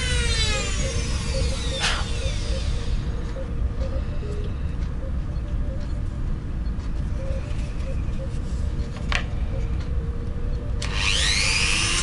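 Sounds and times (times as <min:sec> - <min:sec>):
rotary tool whine: 0:00.0 - 0:04.3, 0:10.5 - 0:12.0.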